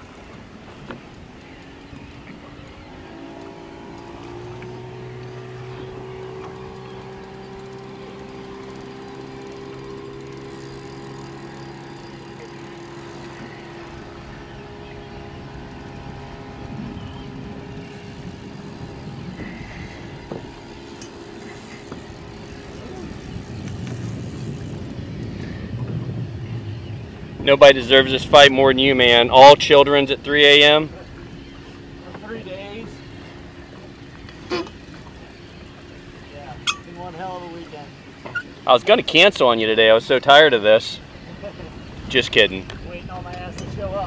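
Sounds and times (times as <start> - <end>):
boat motor humming: 0.0 - 44.0
wind on microphone: 9.6 - 37.1, 41.0 - 44.0.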